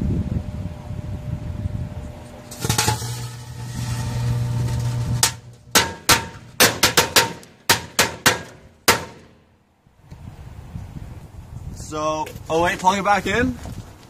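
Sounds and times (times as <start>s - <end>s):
microwave oven humming: 0.0s - 6.6s.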